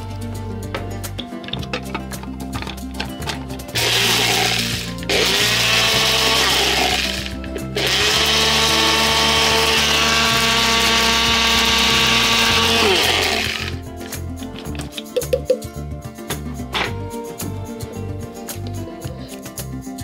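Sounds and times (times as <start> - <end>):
blender grinding: 3.7 - 13.8.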